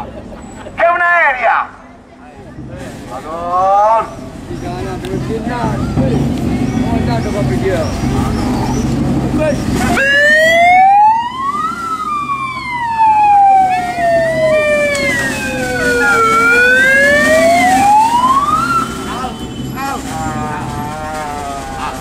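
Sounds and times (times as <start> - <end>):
siren wailing: 9.9 - 19.3.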